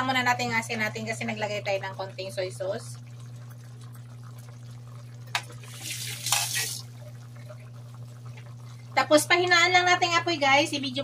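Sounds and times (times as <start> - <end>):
steady low hum: 0.0 - 11.0
liquid splashing bursts: 5.4 - 7.0.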